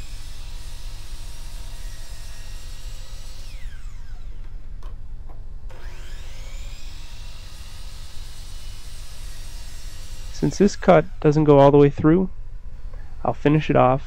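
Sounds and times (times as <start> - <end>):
saw blade cutting wood: 0.0 - 4.6, 5.7 - 11.8
miter saw motor whine: 0.0 - 4.8, 5.7 - 11.8.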